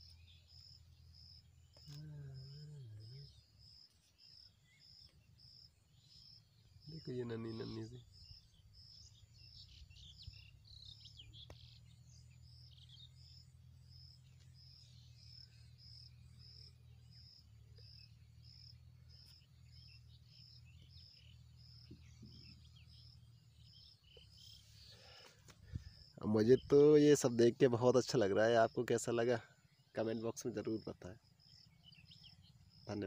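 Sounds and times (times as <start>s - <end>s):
cricket chirping: 0.0s - 33.0s.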